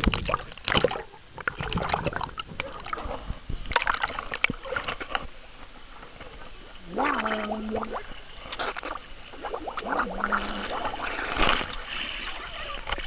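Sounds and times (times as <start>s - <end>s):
underwater bubbling crackles: 0.0s - 13.0s
water sloshing and splashing: 0.0s - 13.0s.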